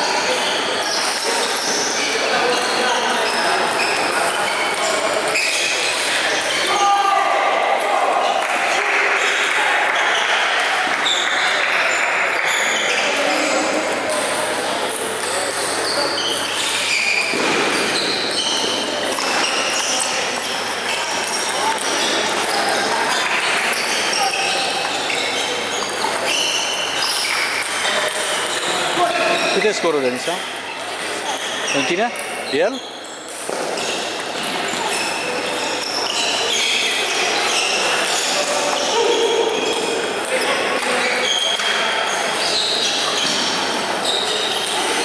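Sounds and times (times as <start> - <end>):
shoes squeaking: 0.0 - 8.3, 10.0 - 45.0.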